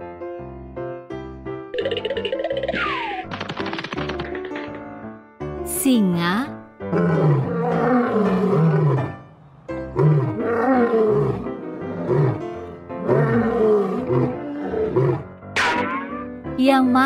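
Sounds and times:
background music: 0:00.0 - 0:17.0
lion roaring: 0:06.9 - 0:15.4.

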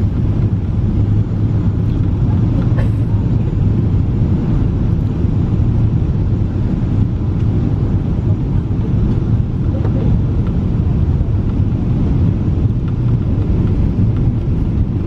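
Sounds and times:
airplane cabin engine rumble: 0:00.0 - 0:15.0.

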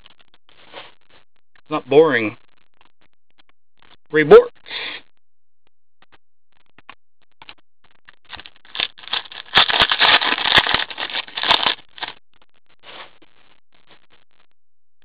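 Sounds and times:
foil wrapper crinkling: 0:08.3 - 0:12.2.

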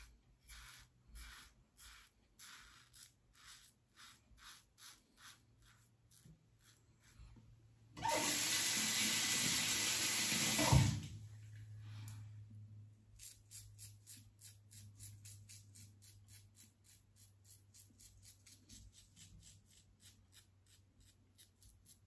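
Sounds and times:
razor scraping stubble: 0:00.0 - 0:07.4, 0:13.2 - 0:22.0
water running into sink: 0:08.0 - 0:11.2.

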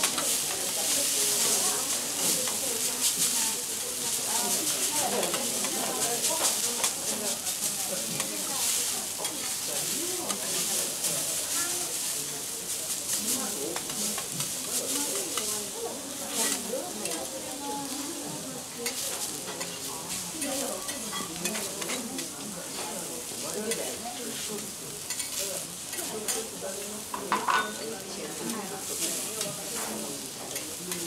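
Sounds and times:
metal spatulas scraping and tapping: 0:00.0 - 0:03.8, 0:04.6 - 0:11.2, 0:12.9 - 0:15.5, 0:16.3 - 0:17.3, 0:18.8 - 0:23.0, 0:23.6 - 0:26.5
food sizzling on griddle: 0:00.0 - 0:31.0.

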